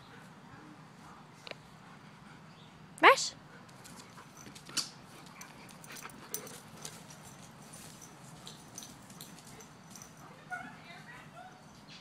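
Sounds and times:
dog moving on grass: 6.3s - 10.4s.

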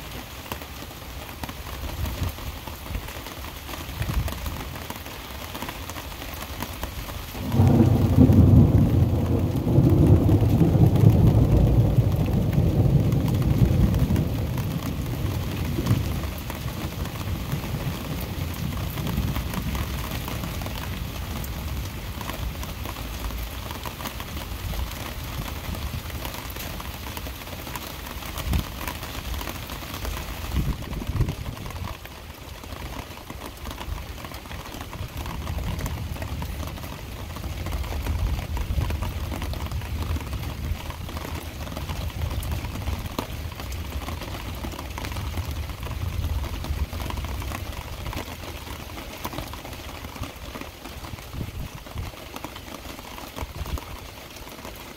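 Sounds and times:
heavy rain falling: 0.0s - 54.9s
thunderclap rumbling: 7.4s - 22.7s.

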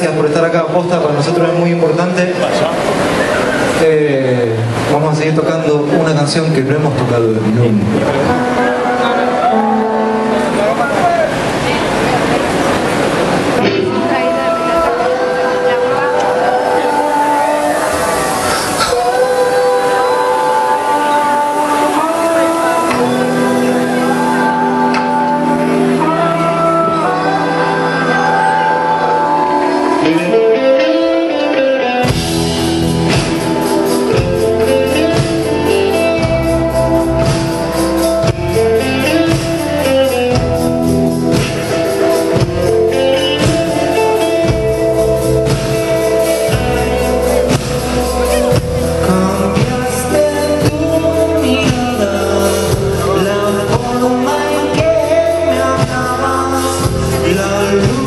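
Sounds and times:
bass: 0.0s - 58.0s
guitars: 0.0s - 58.0s
drums: 6.4s - 58.0s
person singing: 13.6s - 58.0s.

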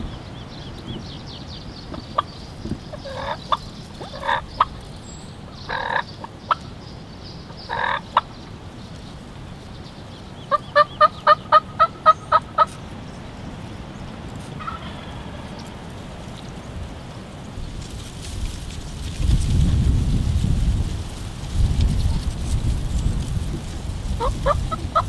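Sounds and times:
turkey gobbling: 2.9s - 4.8s, 5.7s - 6.7s, 7.7s - 8.3s, 10.5s - 12.8s, 14.5s - 15.8s, 24.1s - 25.0s
turkey hen yelps: 2.9s - 4.8s, 5.7s - 6.7s, 7.7s - 8.3s, 10.5s - 12.8s, 14.6s - 15.8s, 24.2s - 25.0s.

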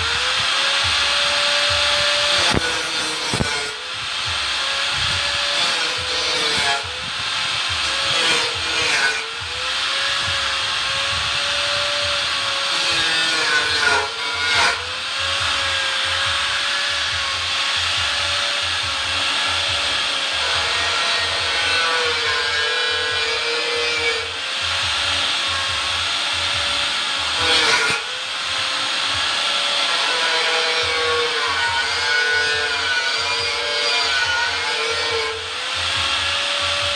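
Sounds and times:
angle grinder cutting metal: 0.0s - 36.9s.

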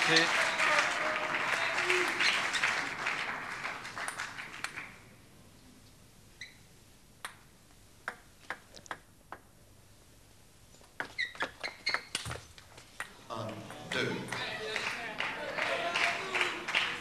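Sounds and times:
crowd applause: 0.0s - 5.0s, 13.3s - 17.0s
table tennis ball bouncing: 7.2s - 9.5s, 10.8s - 12.4s.

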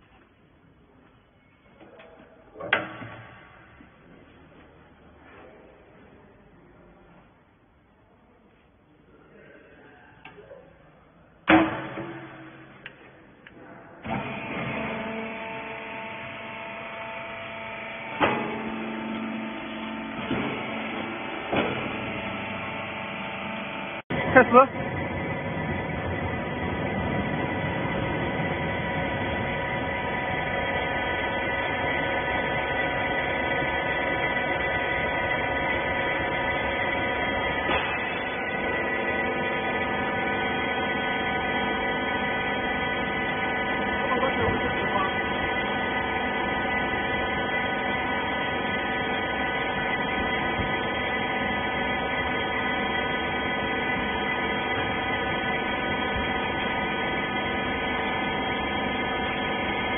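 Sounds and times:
hydraulic pump motor humming: 14.0s - 59.9s.

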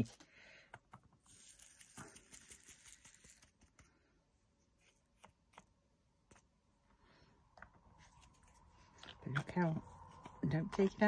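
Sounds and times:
beads pattering into plastic pot: 1.1s - 3.9s.

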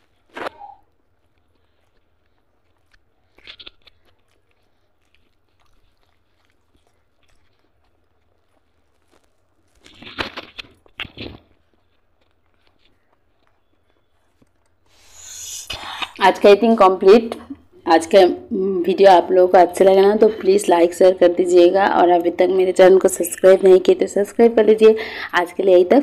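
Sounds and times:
person chewing food: 0.0s - 16.3s.

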